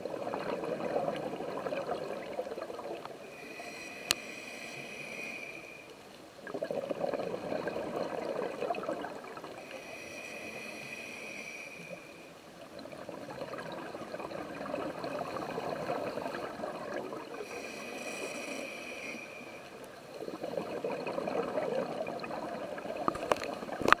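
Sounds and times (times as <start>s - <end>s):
bubbling exhaust bubbles: 0.0s - 3.1s, 6.4s - 9.6s, 12.7s - 17.5s, 20.0s - 24.0s
hissing inhale through regulator: 3.0s - 6.1s, 6.7s - 24.0s.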